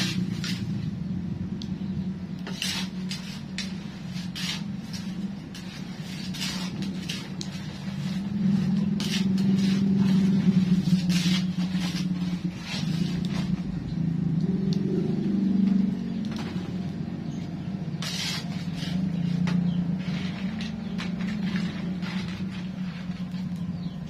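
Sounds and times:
low engine-like hum: 0:00.0 - 0:24.0
metal spatula scraping in a wok: 0:02.4 - 0:13.6, 0:17.8 - 0:24.0.

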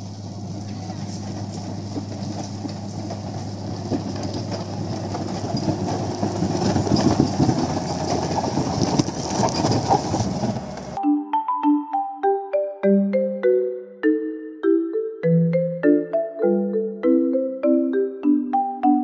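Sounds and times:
blade scraping soil and gravel: 0:00.0 - 0:11.0
diesel engine running: 0:00.0 - 0:11.0.

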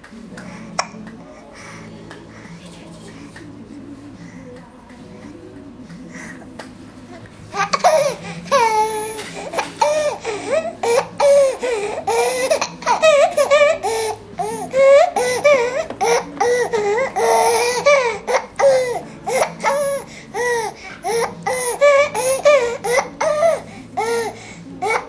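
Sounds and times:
baby laughing hysterically: 0:09.5 - 0:24.2.

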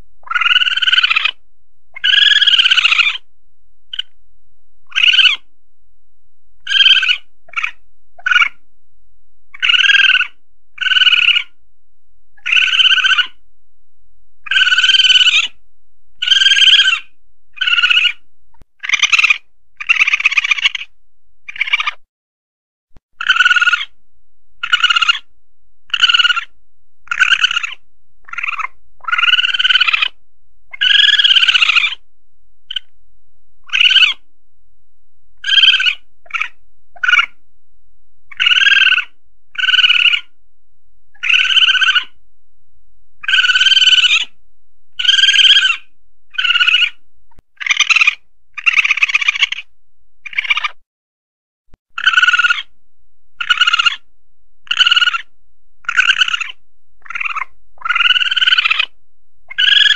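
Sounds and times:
civet calls: 0:00.0 - 0:03.3, 0:03.9 - 0:04.2, 0:04.8 - 0:05.5, 0:06.6 - 0:08.6, 0:09.5 - 0:11.6, 0:12.4 - 0:13.4, 0:14.4 - 0:15.6, 0:16.2 - 0:22.0, 0:23.1 - 0:24.0, 0:24.6 - 0:25.3, 0:25.9 - 0:32.0, 0:32.7 - 0:32.9, 0:33.6 - 0:34.3, 0:35.4 - 0:37.4, 0:38.3 - 0:40.4, 0:41.1 - 0:42.2, 0:43.2 - 0:50.8, 0:51.9 - 0:52.8, 0:53.4 - 0:59.9.

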